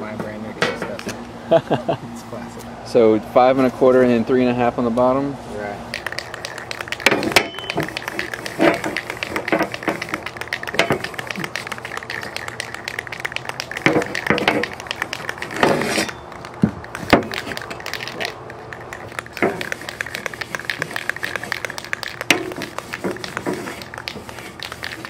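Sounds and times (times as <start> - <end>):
metal parts knocking and rattling: 6.0 - 25.0
cloth rag rubbing metal: 6.1 - 16.2, 19.0 - 25.0.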